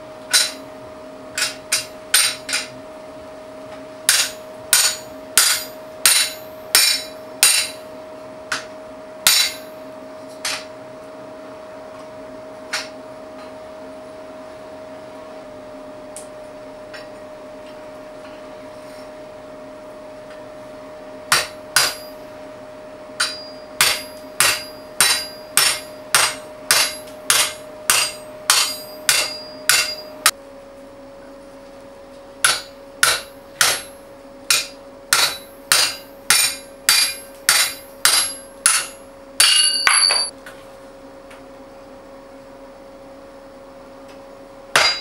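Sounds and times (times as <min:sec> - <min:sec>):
metal ringing: 0:23.2 - 0:30.3, 0:32.5 - 0:40.3, 0:44.8 - 0:45.0.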